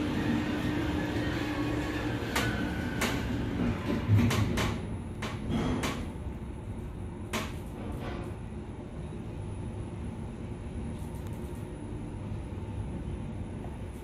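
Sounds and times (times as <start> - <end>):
sliding elevator doors: 0.0 - 6.3
elevator low hum: 0.0 - 14.0.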